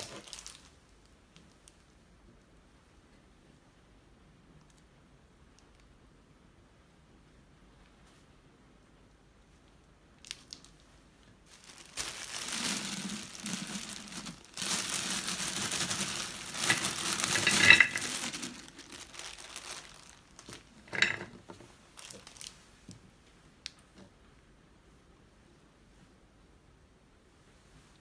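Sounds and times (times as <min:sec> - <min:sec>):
plastic bag crinkling: 0:00.0 - 0:00.8, 0:11.5 - 0:22.6.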